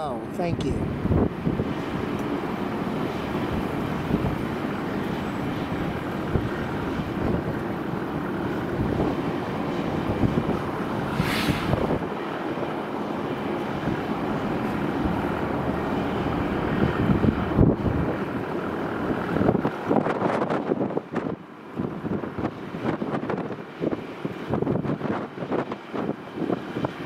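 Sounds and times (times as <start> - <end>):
jet engines running: 0.0 - 27.0
short hiss: 11.1 - 11.9.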